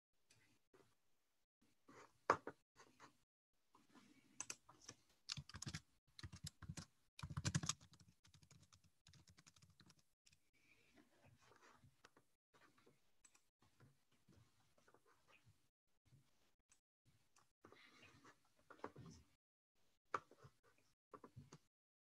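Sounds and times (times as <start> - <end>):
keyboard typing: 4.4 - 10.1.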